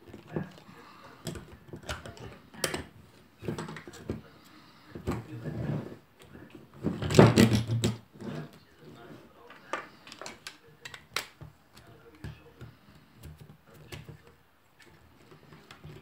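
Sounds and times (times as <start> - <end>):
hard plastic clicking and knocking: 6.8 - 8.1.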